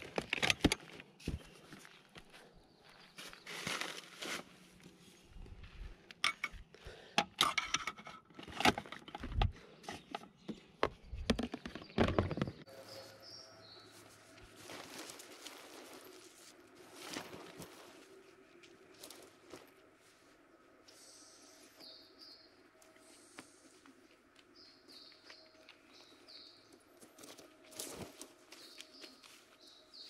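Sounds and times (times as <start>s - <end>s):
rubber hose rustling: 14.0s - 18.1s.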